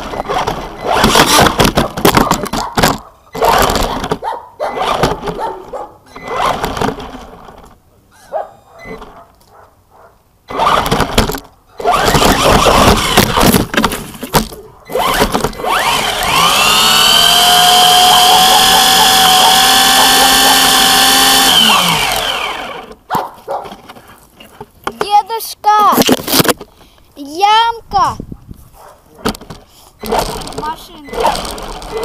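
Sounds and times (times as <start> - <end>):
toy car electric motor whine: 0.0 - 1.6, 10.5 - 13.7, 14.9 - 23.0, 30.0 - 32.0
tyres on dirt and gravel: 0.0 - 8.0, 10.3 - 28.2, 28.8 - 32.0.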